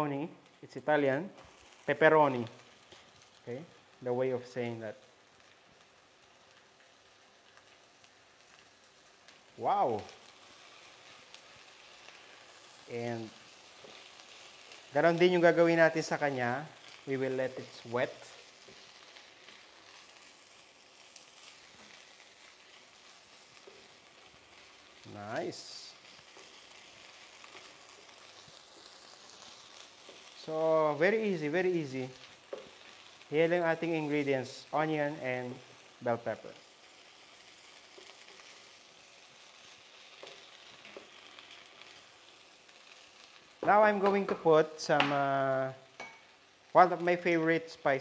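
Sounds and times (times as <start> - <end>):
vegetables sizzling in a pan: 0.0 - 48.0
spoon tapping the pan: 46.0 - 46.3.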